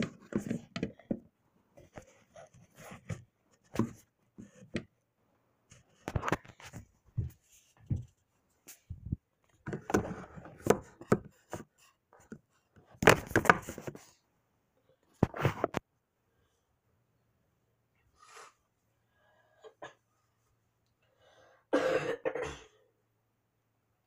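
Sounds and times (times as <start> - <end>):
phone handling knocks and rustles: 8.9 - 11.7, 13.0 - 14.0.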